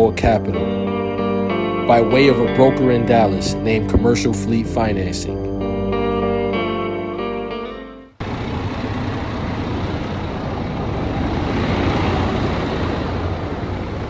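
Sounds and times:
slide guitar music: 0.0 - 8.2
truck engine idling: 8.2 - 14.0.

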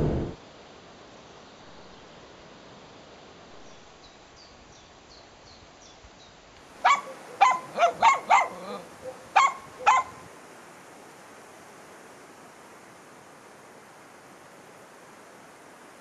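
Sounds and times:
dog barking: 6.8 - 10.2.

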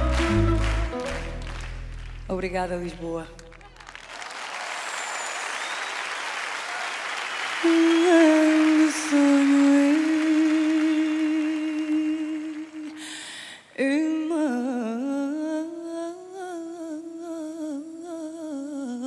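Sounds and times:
applause: 0.0 - 13.5.

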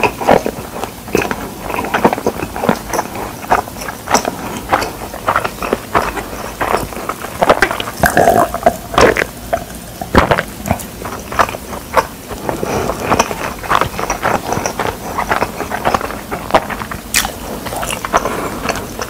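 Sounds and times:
gulping a drink: 0.0 - 19.0
wet chewing and lip smacks: 0.0 - 19.0.

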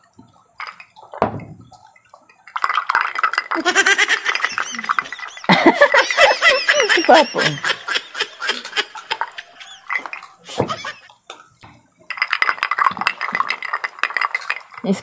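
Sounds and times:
person laughing and vocalizing: 3.5 - 11.1.

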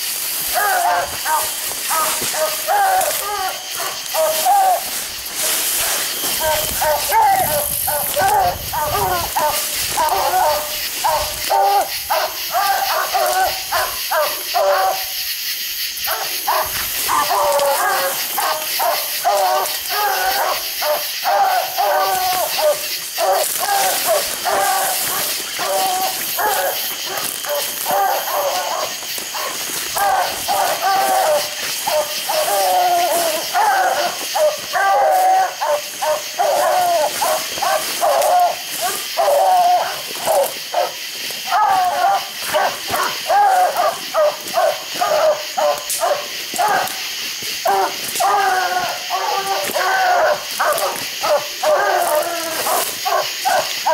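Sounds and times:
dogs barking: 0.0 - 53.9.

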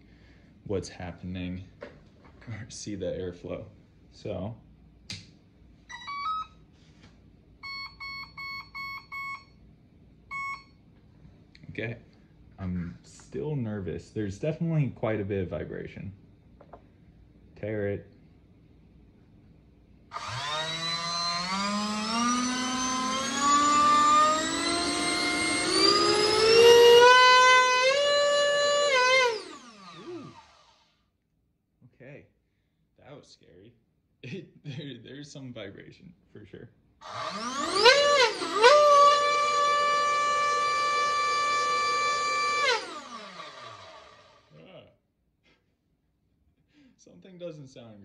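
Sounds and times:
turbine whine rising in pitch: 20.2 - 30.8, 37.0 - 44.5.

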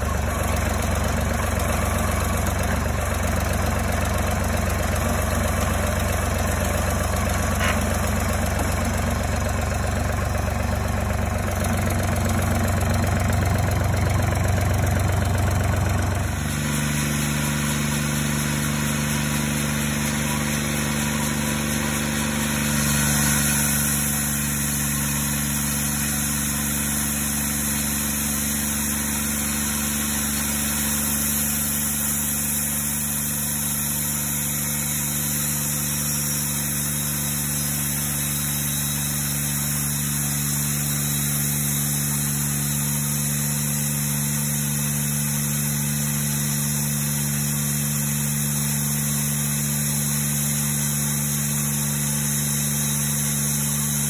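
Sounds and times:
sawmill engine running: 0.0 - 54.0
band blade sawing log: 4.8 - 9.4, 16.2 - 54.0.

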